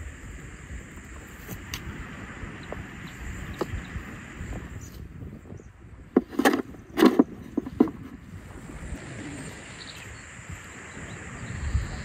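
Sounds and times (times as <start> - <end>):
earth dropped into wheelbarrow: 6.2 - 8.1
spade thuds and scrapes: 6.2 - 8.2.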